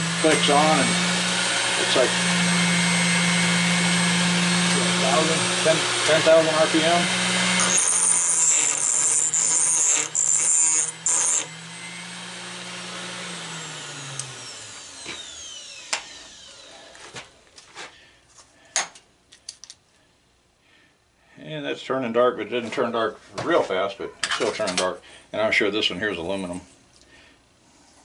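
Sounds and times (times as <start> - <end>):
motor winding down whine: 0.0 - 16.8
grinder grinding metal: 0.0 - 17.2.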